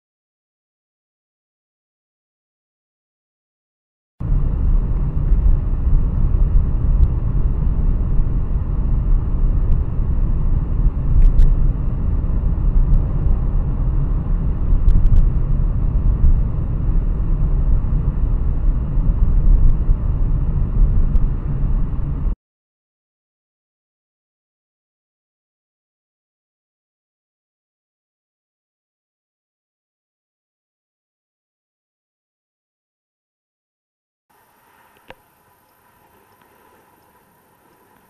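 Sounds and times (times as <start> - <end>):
car driving at speed rumble: 4.2 - 22.4
faint clicks: 34.6 - 38.0.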